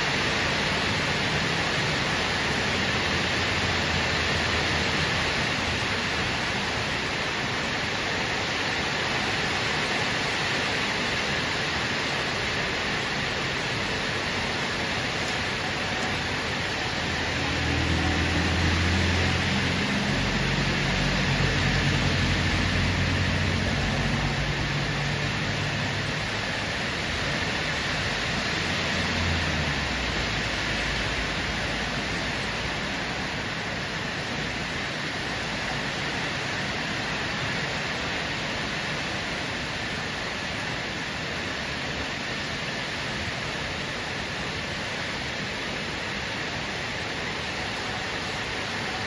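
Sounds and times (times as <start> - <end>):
heavy rain pouring: 0.0 - 49.0.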